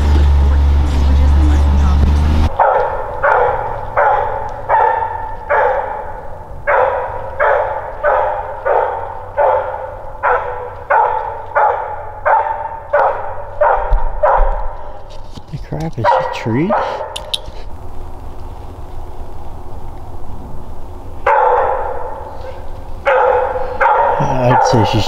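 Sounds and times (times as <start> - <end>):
dog barking with echo: 2.5 - 15.0, 16.0 - 17.2, 21.2 - 25.0.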